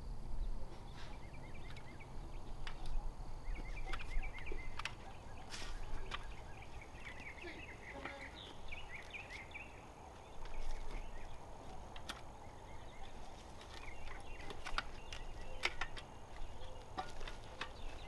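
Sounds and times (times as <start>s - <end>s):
bird chirps: 0.4s - 11.8s, 12.4s - 18.0s.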